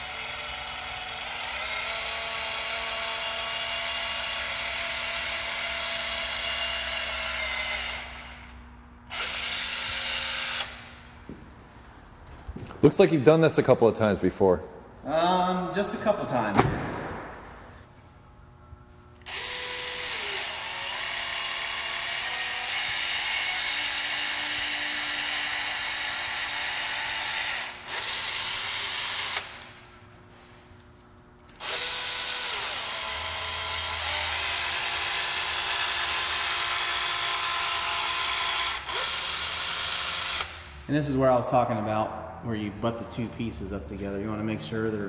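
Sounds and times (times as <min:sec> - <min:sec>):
caulking gun motor whirring: 0:00.0 - 0:11.0, 0:19.2 - 0:29.7, 0:31.5 - 0:40.7.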